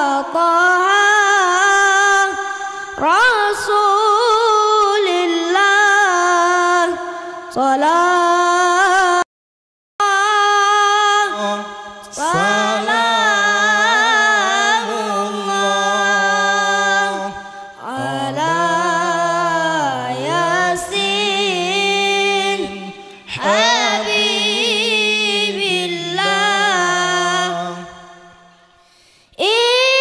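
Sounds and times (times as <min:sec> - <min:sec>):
high voice chanting: 0:10.0 - 0:28.5
lower sustained vocal part: 0:10.1 - 0:28.8.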